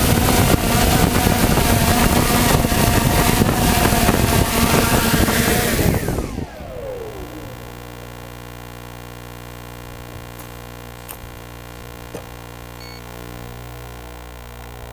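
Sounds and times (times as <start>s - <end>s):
drone motors winding down: 0.0s - 8.8s
steady electrical hum: 0.0s - 14.9s.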